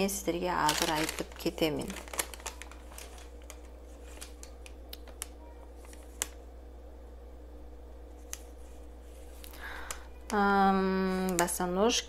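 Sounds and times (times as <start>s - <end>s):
low steady hum: 0.0s - 12.0s
paper receipt rustling: 0.5s - 6.4s.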